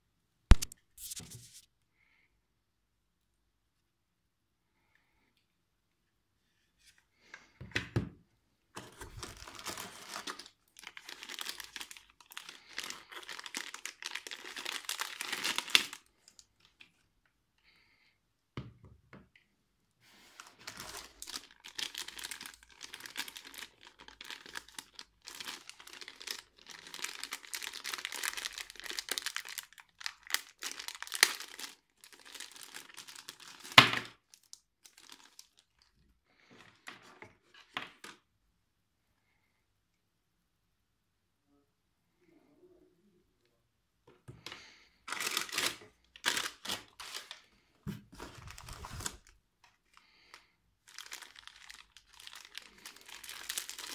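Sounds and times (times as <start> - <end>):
plastic packaging crinkling: 0.5 - 1.6, 8.8 - 17.0, 20.4 - 35.9, 45.1 - 53.9.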